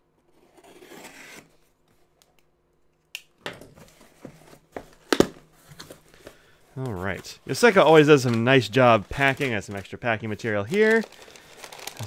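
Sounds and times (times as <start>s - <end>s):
tape tearing: 10.6s - 12.0s.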